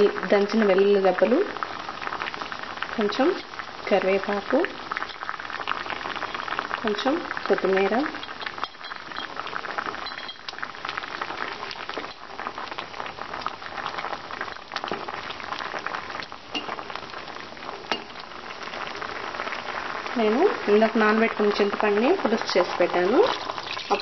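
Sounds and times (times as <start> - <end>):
water boiling with bubbling pops: 0.0 - 24.0
wooden spoon stirring pot: 22.4 - 24.0.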